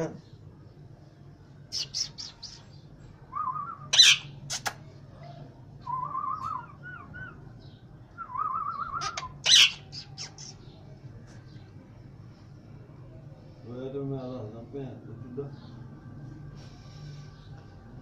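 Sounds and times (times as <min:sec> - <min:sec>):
parakeet warbling calls: 0:01.7 - 0:02.7, 0:03.4 - 0:04.7, 0:08.4 - 0:10.8.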